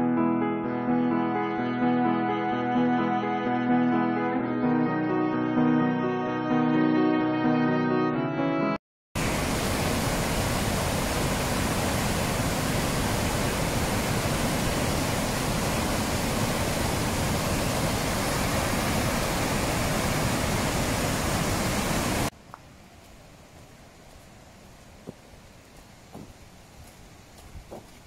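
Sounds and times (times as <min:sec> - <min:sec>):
waterfall rushing: 0:09.2 - 0:22.3.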